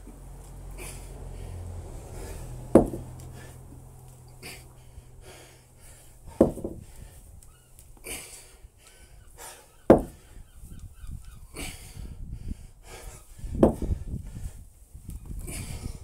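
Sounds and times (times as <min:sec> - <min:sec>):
heavy panting breaths: 0:00.4 - 0:10.6, 0:11.3 - 0:14.7, 0:15.3 - 0:16.0
kettlebell thudding onto concrete: 0:02.7 - 0:03.1, 0:06.4 - 0:06.8, 0:09.9 - 0:10.2, 0:13.6 - 0:13.9.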